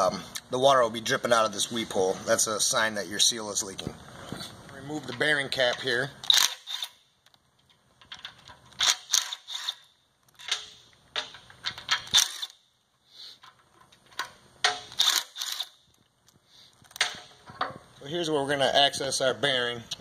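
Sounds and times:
metal bolts and tools clinking: 4.9 - 12.6, 13.3 - 16.1, 16.8 - 17.9.

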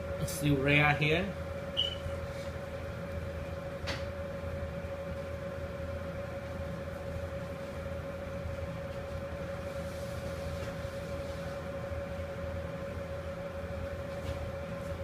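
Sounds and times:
kitchen machinery humming: 0.0 - 15.0.

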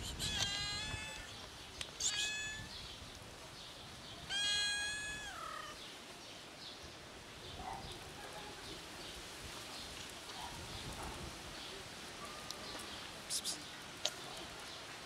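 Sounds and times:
kitten meowing: 0.1 - 1.3, 2.0 - 2.7, 4.3 - 5.8.

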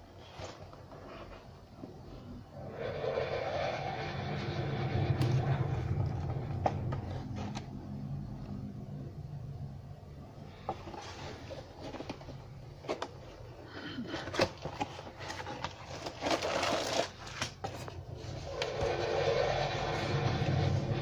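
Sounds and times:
plastic bag crinkling: 14.5 - 17.6.

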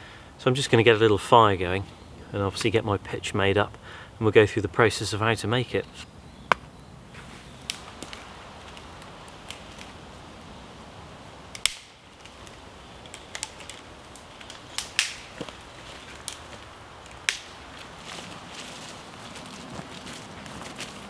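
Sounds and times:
dry sticks snapping: 7.5 - 10.5, 11.4 - 21.0.

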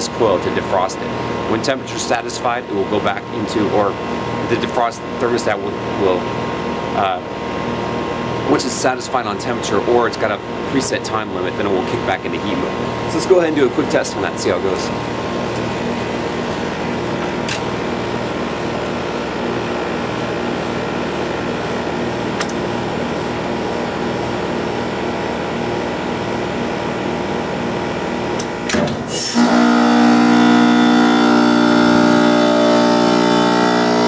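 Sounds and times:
heat pump unit running: 0.0 - 34.0
steady hum with tones: 0.0 - 34.0
heat pump clicks: 22.4 - 22.6, 28.4 - 29.0.

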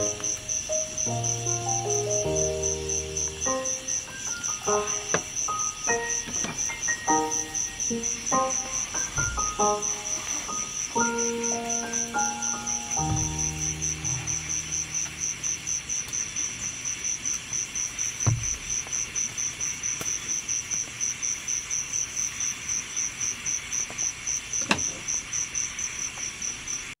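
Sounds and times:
cricket chirping: 0.0 - 27.0
soft knock: 18.2 - 18.6.

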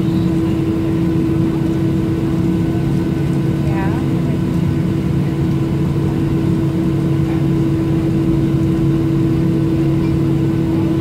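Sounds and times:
jet engines idling: 0.0 - 11.0.

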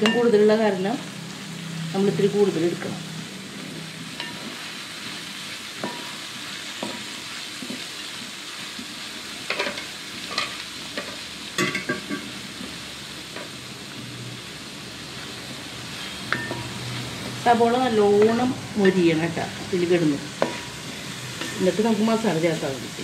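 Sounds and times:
onions sizzling in oil: 0.0 - 23.0
spatula scraping and knocking pan: 20.4 - 21.7.

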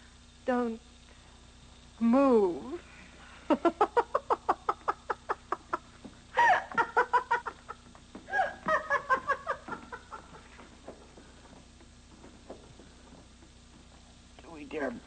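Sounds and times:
villainous laughter: 3.5 - 10.4.

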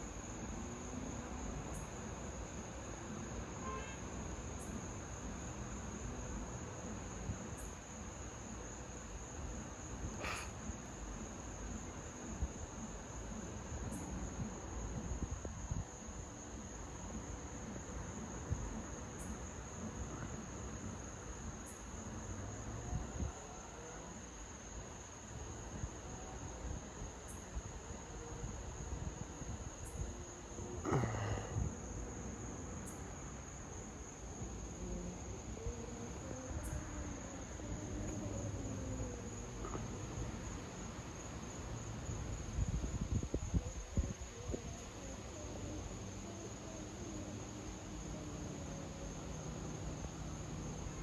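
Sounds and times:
night insects trilling: 0.0 - 51.0.

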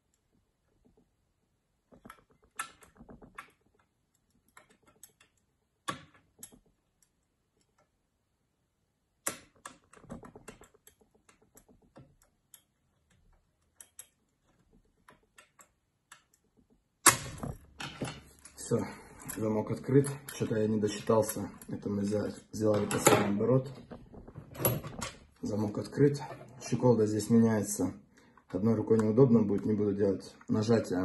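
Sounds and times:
lock picks clicking and scraping: 1.9 - 7.9, 9.2 - 18.6, 19.2 - 21.9.

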